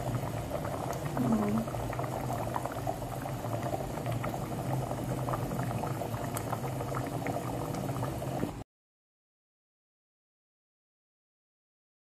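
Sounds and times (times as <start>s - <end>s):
stew boiling and bubbling: 0.0s - 8.6s.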